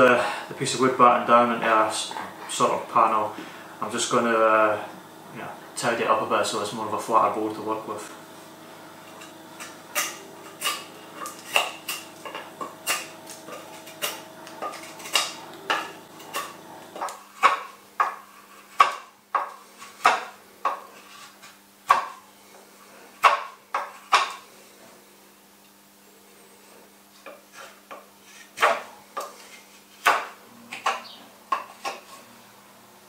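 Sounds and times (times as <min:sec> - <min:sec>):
knife shaving wood: 0:09.0 - 0:22.2, 0:26.6 - 0:30.2.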